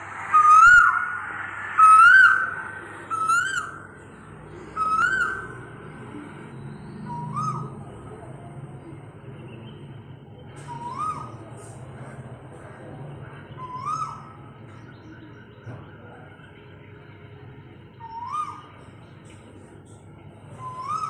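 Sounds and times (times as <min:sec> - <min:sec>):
bird whistled calls: 0:00.0 - 0:08.0, 0:10.6 - 0:11.9, 0:13.6 - 0:16.2, 0:18.0 - 0:18.9, 0:20.5 - 0:21.0.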